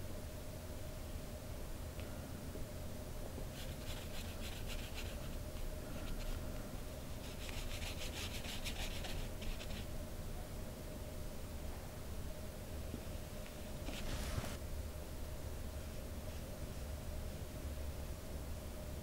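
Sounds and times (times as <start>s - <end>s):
paintbrush stroking on paper: 3.6s - 5.4s, 7.2s - 9.8s, 13.9s - 14.6s.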